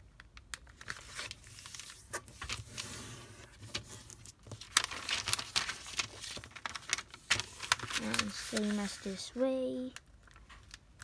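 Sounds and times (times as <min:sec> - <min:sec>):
paper rustling and crinkling: 0:00.6 - 0:10.8
paper creasing clicks: 0:04.5 - 0:09.2.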